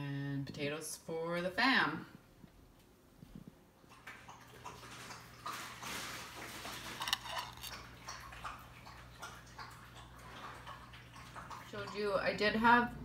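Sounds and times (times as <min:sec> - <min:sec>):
dishes and utensils clicking: 0:06.8 - 0:07.8.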